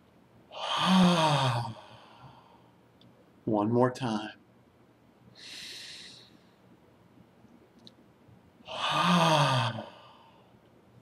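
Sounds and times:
man breathing in through nose: 0:05.4 - 0:06.6.

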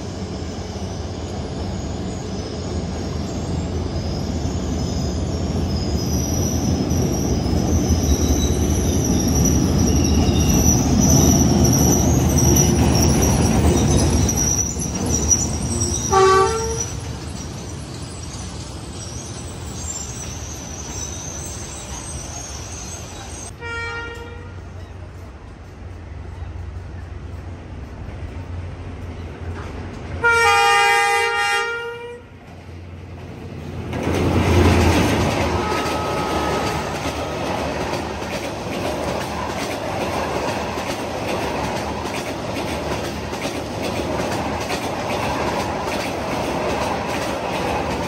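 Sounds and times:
high-pitched squeal: 0:00.0 - 0:23.5
train rumbling past on rails: 0:00.0 - 0:48.0
locomotive horn toot: 0:16.1 - 0:17.0, 0:23.5 - 0:24.6, 0:30.2 - 0:32.3, 0:35.5 - 0:37.5.

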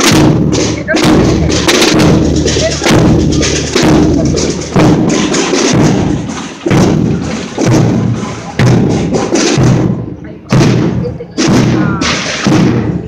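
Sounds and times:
drum beating slow single strokes: 0:00.0 - 0:13.0.

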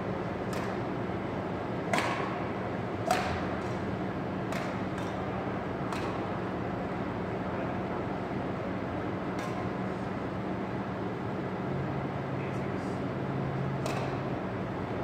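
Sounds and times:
steady low hum: 0:00.0 - 0:15.0
rackets hitting shuttlecock: 0:00.4 - 0:00.9, 0:01.8 - 0:05.2, 0:05.8 - 0:06.4, 0:09.3 - 0:09.8, 0:13.8 - 0:14.3.

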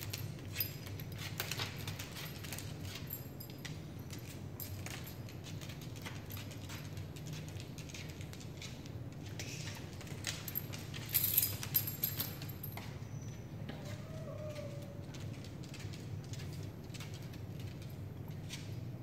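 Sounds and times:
dog collar tags jingling: 0:00.0 - 0:08.9, 0:09.7 - 0:13.3.

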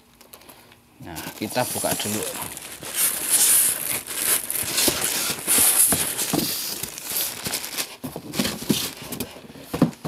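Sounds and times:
plastic wrap rustling: 0:00.3 - 0:10.0
foam scraping against cardboard: 0:01.5 - 0:09.3.

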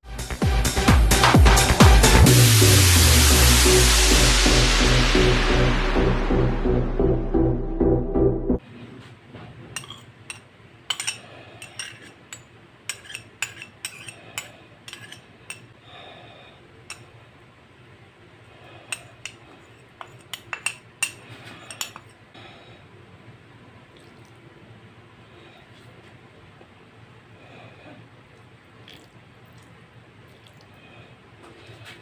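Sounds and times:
utensil clinking against metal bowl: 0:09.8 - 0:15.7, 0:18.9 - 0:22.2.

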